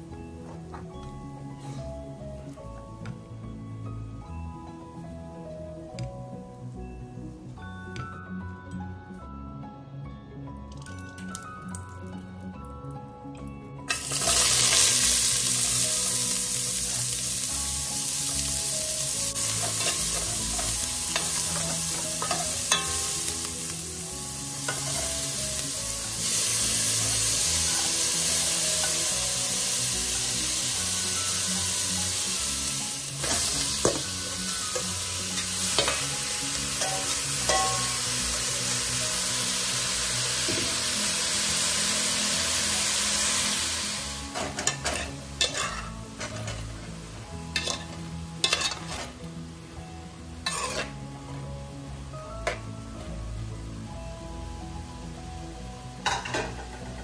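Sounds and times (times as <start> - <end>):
vegetables sizzling in hot oil: 13.9 - 52.9
metal utensil stirring and scraping: 44.6 - 46.6, 47.6 - 49.2, 50.4 - 51.0.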